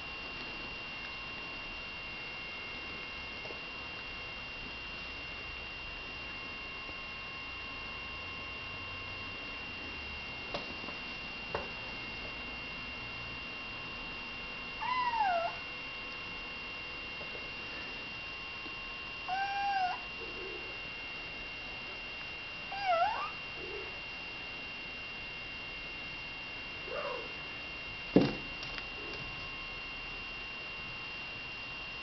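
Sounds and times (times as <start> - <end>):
faint high whine: 0.0 - 32.0
kitten meowing: 14.8 - 15.6, 19.3 - 20.0, 22.7 - 23.4.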